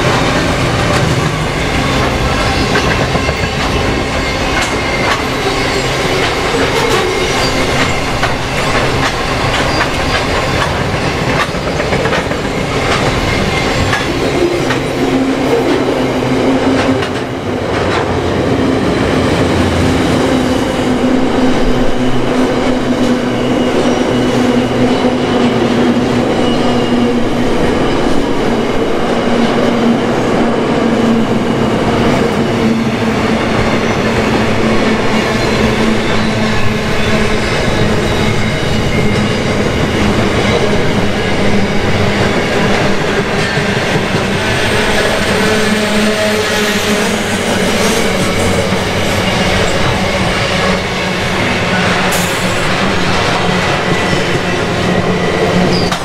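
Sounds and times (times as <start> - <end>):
train wheels clicking over rail joints: 0.0 - 18.2.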